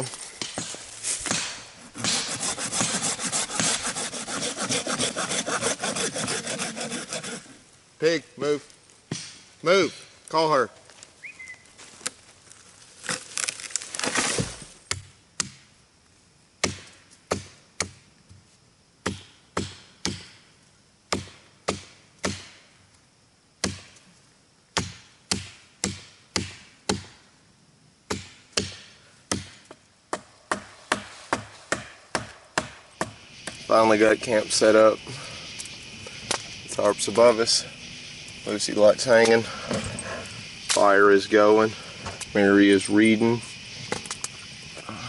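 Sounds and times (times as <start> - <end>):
rustle of brush and leaves: 0.0 - 14.9, 30.4 - 31.8, 32.9 - 45.0
blade chopping green wood: 0.4 - 7.4.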